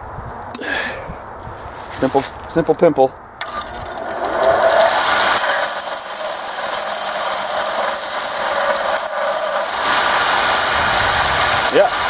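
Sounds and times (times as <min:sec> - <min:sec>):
belt sander grinding steel: 0:03.4 - 0:10.8.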